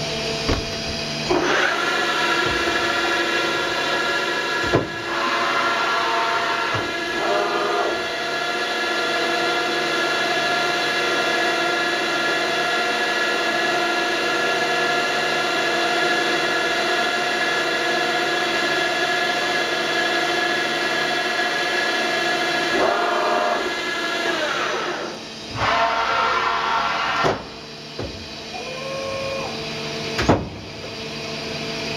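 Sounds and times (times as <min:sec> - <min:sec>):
motor running: 0:00.0 - 0:08.3
machine whine: 0:00.0 - 0:31.9
loud clunk: 0:00.4 - 0:01.6, 0:04.6 - 0:05.0.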